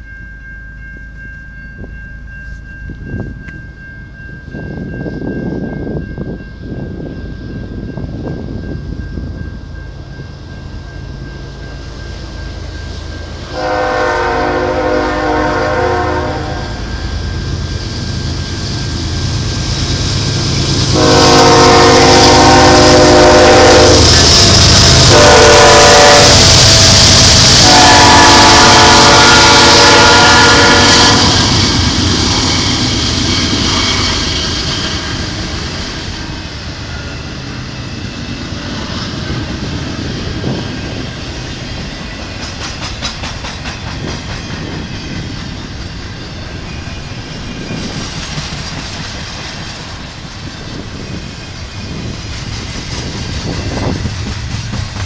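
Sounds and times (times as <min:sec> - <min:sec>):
locomotive air horn: 0:13.5 - 0:16.9, 0:20.8 - 0:31.6
train wheels clicking over rail joints: 0:30.9 - 0:55.0.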